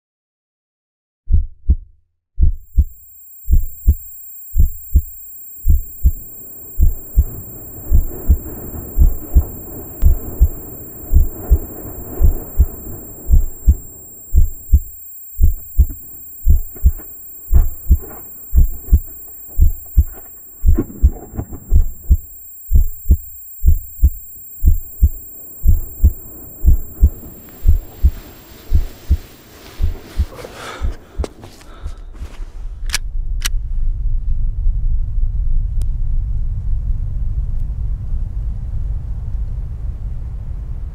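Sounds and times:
heartbeat thumps: 0:01.3 - 0:06.2, 0:06.8 - 0:32.0
hiss: 0:02.7 - 0:31.3.

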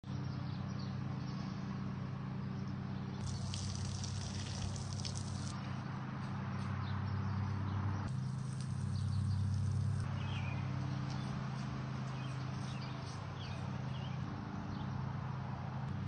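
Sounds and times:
steady low hum: 0:00.1 - 0:16.0
water splashing on tree and ground: 0:03.2 - 0:05.6.

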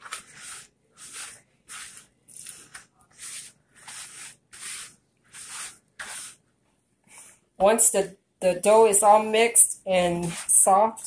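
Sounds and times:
hand rubbing dough in a bowl: 0:00.0 - 0:07.2, 0:10.0 - 0:11.0.

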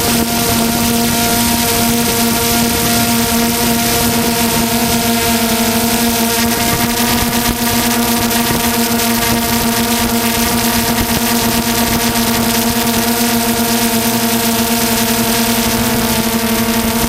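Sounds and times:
wind rush: 0:00.0 - 0:13.1
drone propellers whining: 0:00.0 - 0:17.0.

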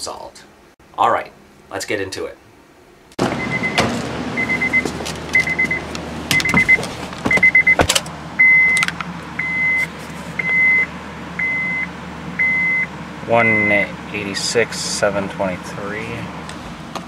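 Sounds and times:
car warning chime beeping: 0:03.4 - 0:03.8, 0:04.4 - 0:08.8, 0:09.4 - 0:09.8, 0:10.4 - 0:13.9
person climbing into seat: 0:04.7 - 0:08.1
car door clicks and knocks: 0:06.3 - 0:08.1.

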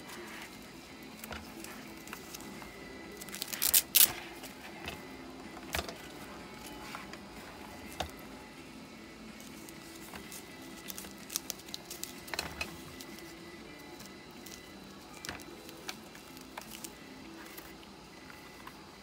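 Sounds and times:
gas mask straps rustling: 0:03.2 - 0:04.6.

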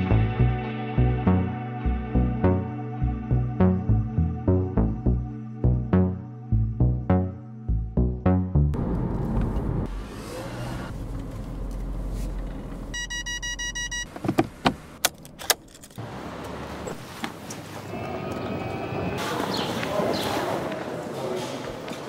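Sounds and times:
car engine rumbling: 0:08.7 - 0:19.1
electronic warning chime beeping: 0:13.0 - 0:14.1.

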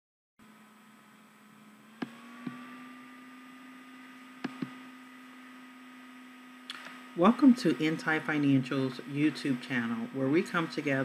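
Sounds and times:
electrical hum: 0:00.4 - 0:11.0
computer mouse clicks: 0:04.4 - 0:04.8.

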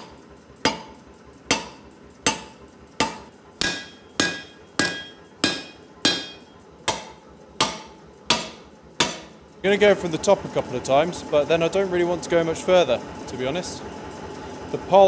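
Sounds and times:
hammer striking hot metal on anvil: 0:00.0 - 0:09.4.

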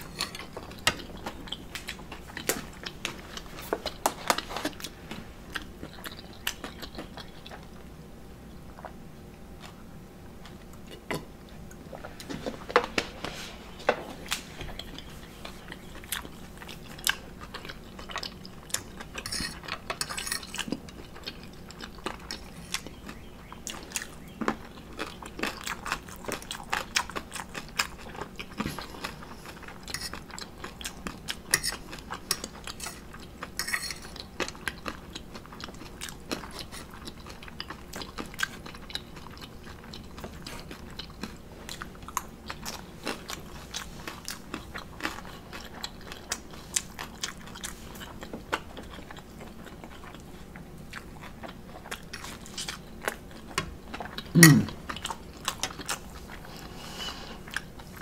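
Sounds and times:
chewing and mouth sounds: 0:00.0 - 0:09.0, 0:13.7 - 0:58.0
fork clinking on ceramic plate: 0:19.3 - 0:20.5, 0:33.6 - 0:34.0.

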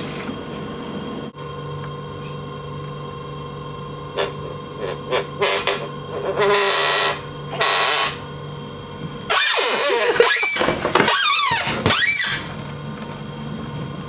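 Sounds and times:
train carriage hum: 0:00.0 - 0:10.4
plastic tray table squeaking: 0:09.3 - 0:12.6.

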